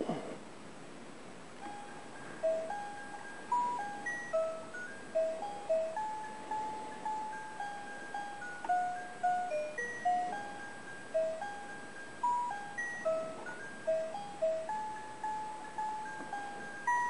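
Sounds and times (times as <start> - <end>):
simple melody of struck notes: 1.6 - 17.0.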